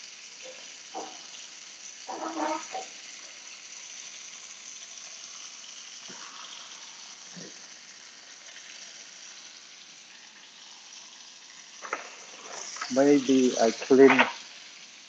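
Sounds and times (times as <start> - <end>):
steaks sizzling in a frying pan: 0.0 - 15.0
pan knocking on cooktop: 1.0 - 1.2.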